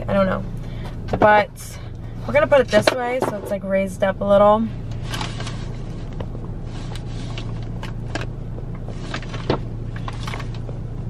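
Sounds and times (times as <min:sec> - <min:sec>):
car engine idling: 0:00.0 - 0:11.0
plastic tray and paper bags rustling: 0:05.0 - 0:06.1.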